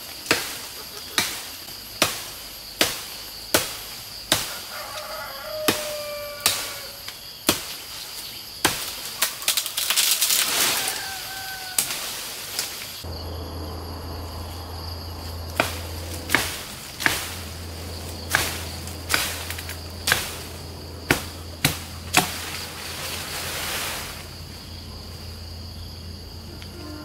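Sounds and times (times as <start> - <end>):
machete chopping branch: 0.2 - 13.0, 15.4 - 23.3
wood cracking and splintering: 8.6 - 13.0.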